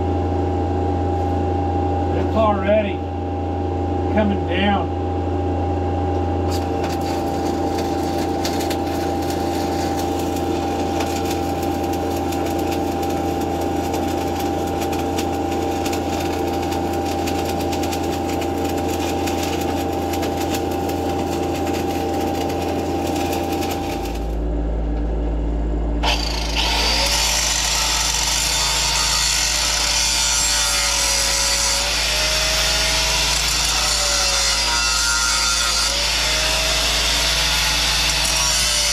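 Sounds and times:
welding machine hum: 0:05.2 - 0:38.9
angle grinder grinding steel: 0:06.5 - 0:24.4, 0:26.0 - 0:38.9
crackling welding arc: 0:06.5 - 0:24.4, 0:26.0 - 0:38.9.

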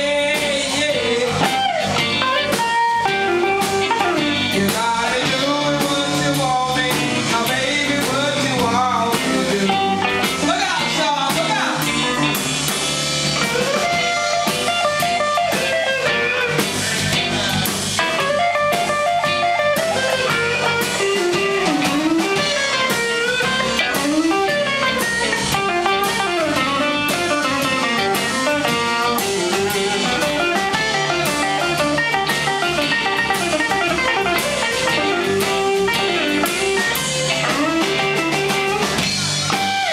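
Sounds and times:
bass and drums: 0:00.0 - 0:39.9
electric guitar bending notes: 0:00.0 - 0:39.9.

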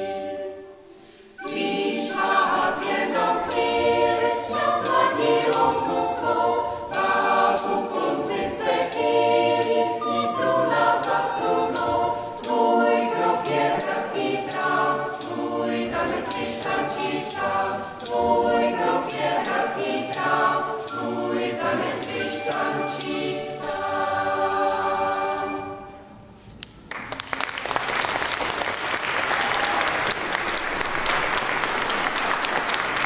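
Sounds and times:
choir singing: 0:00.0 - 0:26.2
audience applause: 0:26.9 - 0:33.0.

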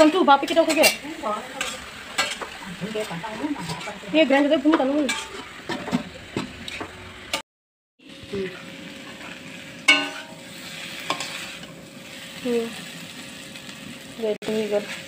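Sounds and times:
food sizzling in oil: 0:00.0 - 0:07.4, 0:08.0 - 0:15.0
metal spatula scraping pan: 0:00.0 - 0:07.4, 0:09.1 - 0:12.2.

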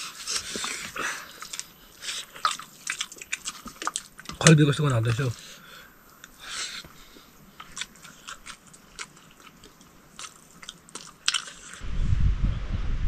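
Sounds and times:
person chewing crunchy food: 0:00.0 - 0:05.3, 0:06.2 - 0:11.8
loud low rumble: 0:11.8 - 0:13.0.

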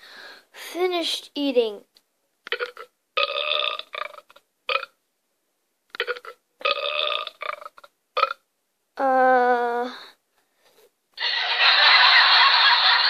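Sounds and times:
person burping: 0:02.5 - 0:05.0, 0:05.9 - 0:08.4.

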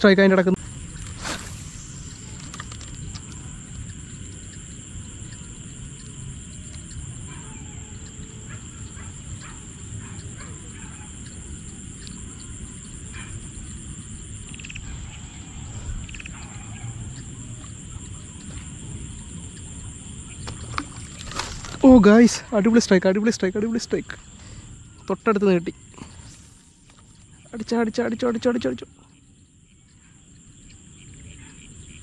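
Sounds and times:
high-pitched insect drone: 0:00.0 - 0:32.0.

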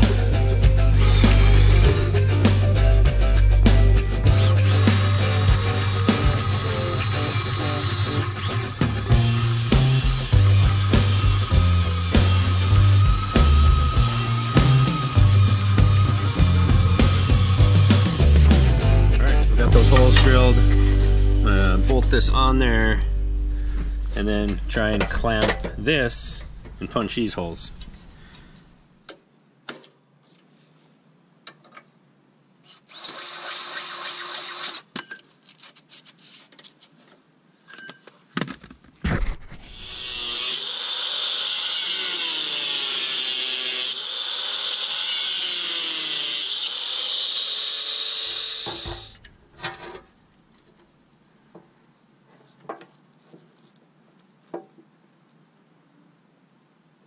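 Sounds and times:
cordless drill running: 0:01.0 - 0:02.1, 0:04.3 - 0:18.2, 0:32.9 - 0:34.8, 0:39.7 - 0:49.2.

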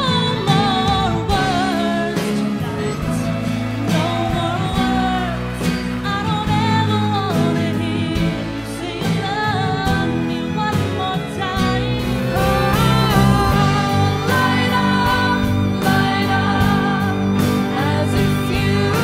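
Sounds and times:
bass: 0:00.0 - 0:19.0
bowed strings: 0:00.0 - 0:19.0
guitar: 0:00.0 - 0:19.0
woman singing: 0:00.0 - 0:19.0
drums beat: 0:12.0 - 0:19.0.

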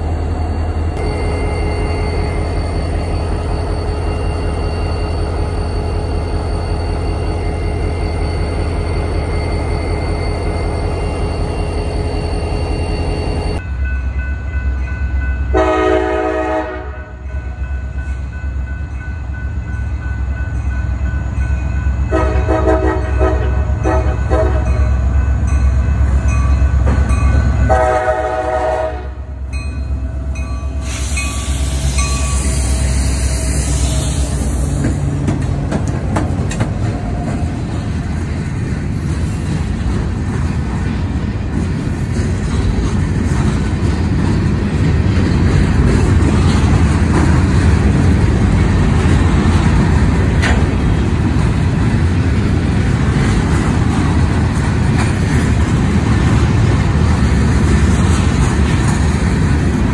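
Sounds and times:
diesel locomotive rumble: 0:00.0 - 0:59.9
locomotive air horn blasts: 0:15.5 - 0:17.2, 0:22.1 - 0:24.8, 0:27.7 - 0:29.4
freight cars clattering on rails: 0:34.7 - 0:59.9.

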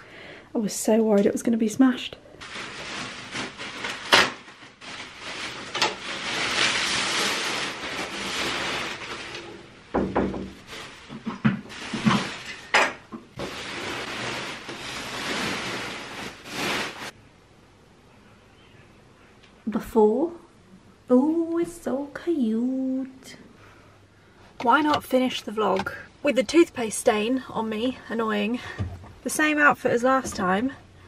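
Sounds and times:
bubble wrap rustling and crinkling: 0:02.4 - 0:17.2.

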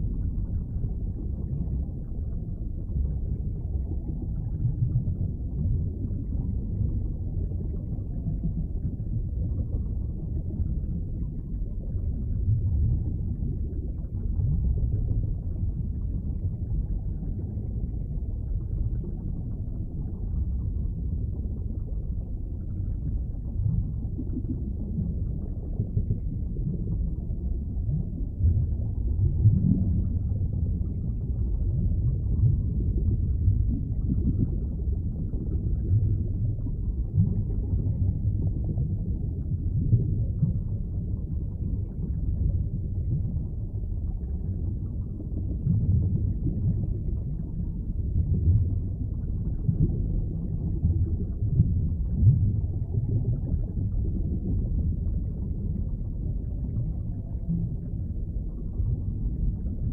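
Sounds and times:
muffled underwater rumble: 0:00.0 - 0:59.9.

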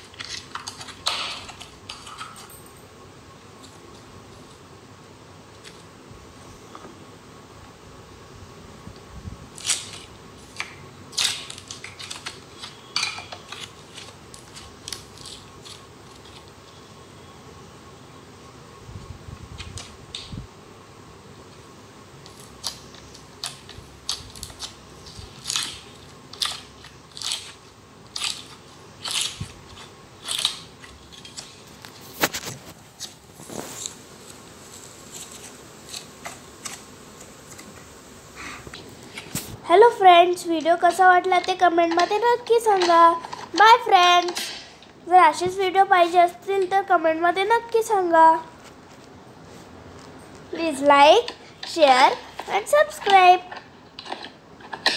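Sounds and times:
faint steady hiss: 0:00.0 - 0:54.9.

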